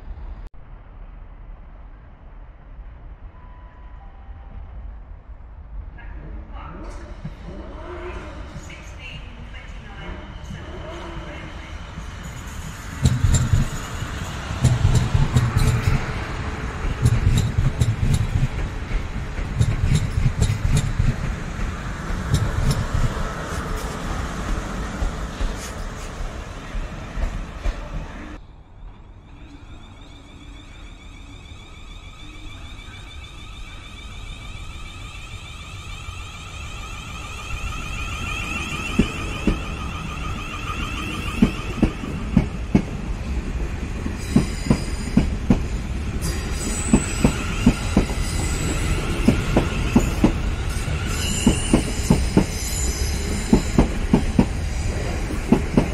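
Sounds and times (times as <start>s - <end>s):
train passing rumble: 0.0s - 55.9s
wheels clicking over rail joints: 13.0s - 16.2s.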